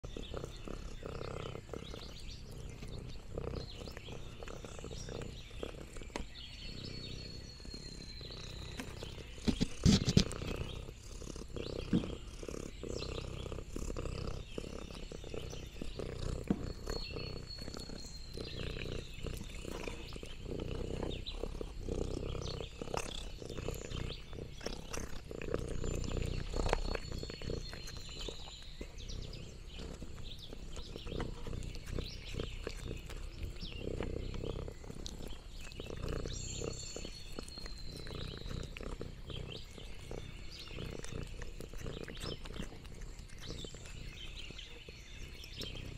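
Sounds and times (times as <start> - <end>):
cat licking and chewing: 0.0 - 45.9
cat purring: 0.0 - 45.9.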